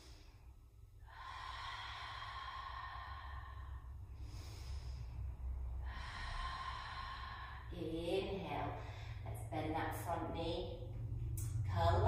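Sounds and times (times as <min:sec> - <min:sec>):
woman breathing deeply: 0:00.0 - 0:09.5
low hum: 0:00.0 - 0:12.0.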